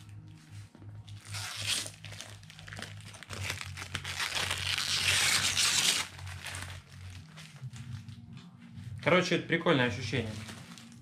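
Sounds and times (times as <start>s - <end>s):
plastic film peeling and crinkling: 1.0s - 8.2s, 10.1s - 11.0s.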